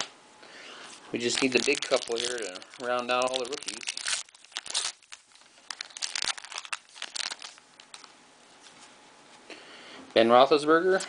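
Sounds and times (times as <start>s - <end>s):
foil wrapper crinkling: 1.2s - 8.7s.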